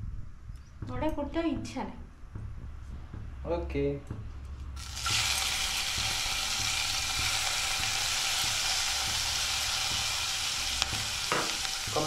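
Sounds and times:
leaves sizzling in hot oil: 4.8 - 12.0.

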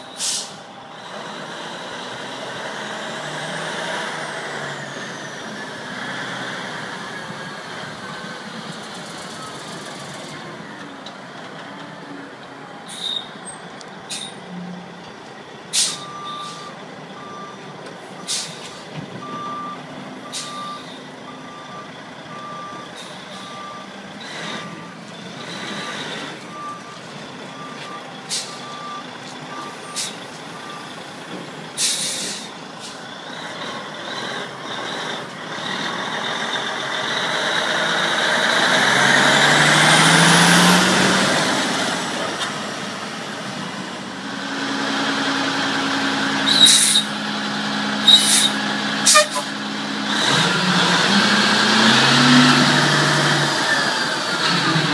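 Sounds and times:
air brake hisses: 0.1 - 0.7, 15.7 - 16.7, 18.3 - 18.8, 28.3 - 28.6, 31.8 - 33.0, 46.5 - 47.1, 48.1 - 49.5
truck engine with rising whistle: 12.8 - 14.5, 33.2 - 54.9
reversing alarm beeps: 19.2 - 24.9, 27.6 - 30.9.

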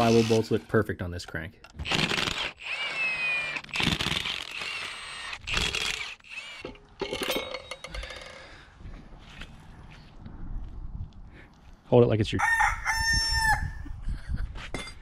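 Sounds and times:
impact wrench bursts: 1.8 - 8.5
metal parts clinking and scraping: 5.6 - 8.5.

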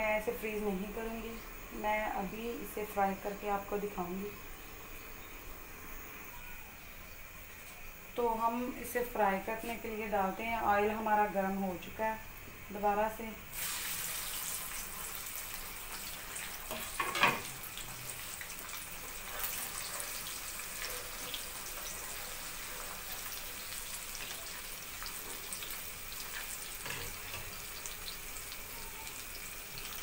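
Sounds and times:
fries sizzling in oil: 0.0 - 30.0.

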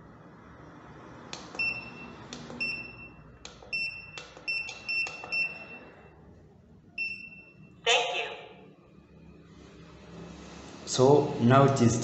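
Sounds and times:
keypad button clicks: 3.5 - 5.5.

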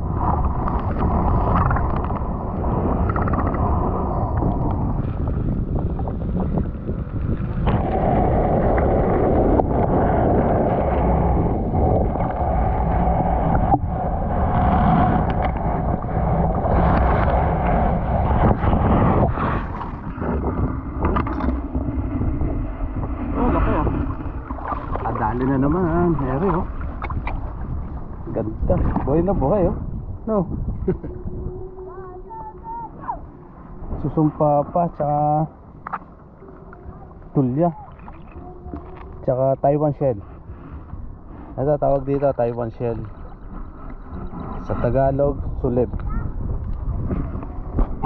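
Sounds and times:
wind buffeting microphone: 0.0 - 48.0
river water splashing around wading: 23.4 - 29.3, 35.7 - 39.4.

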